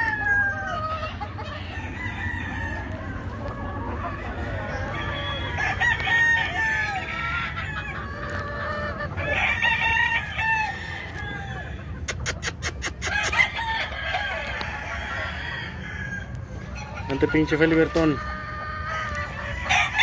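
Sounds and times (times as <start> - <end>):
rooster crowing: 0.0 - 3.3, 4.7 - 8.1, 9.2 - 11.9, 13.0 - 16.4, 18.8 - 20.0
hens clucking: 0.0 - 20.0.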